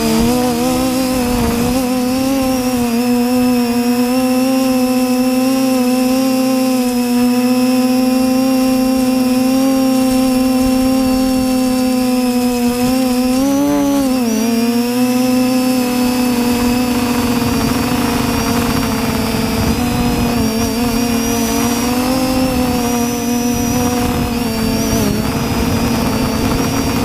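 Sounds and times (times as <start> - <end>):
wind rushing on microphone: 0.0 - 5.4, 7.1 - 27.0
drone motors and propellers whining: 0.0 - 27.0.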